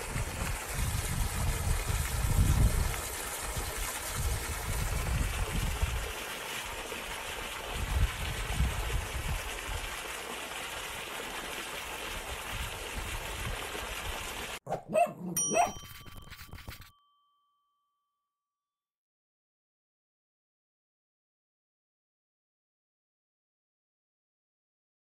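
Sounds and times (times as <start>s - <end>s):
wind rumble on microphone: 0.0s - 6.1s, 7.7s - 9.8s
cartoon dog yipping: 14.7s - 16.0s
bright chime dings: 15.3s - 18.3s.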